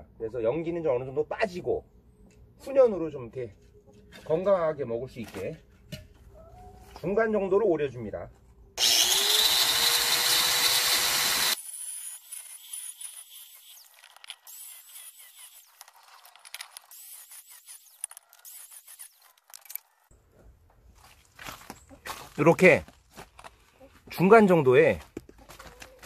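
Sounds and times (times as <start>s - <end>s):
angle grinder cutting ceramic: 8.8s - 19.8s.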